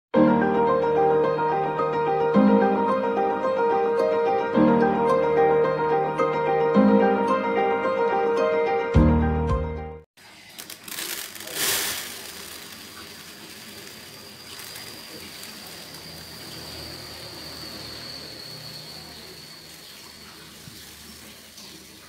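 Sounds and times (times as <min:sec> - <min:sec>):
piano music: 0:00.2 - 0:10.1
rice grains pouring onto a tray: 0:10.2 - 0:16.3
faint high steady tone: 0:13.8 - 0:20.8.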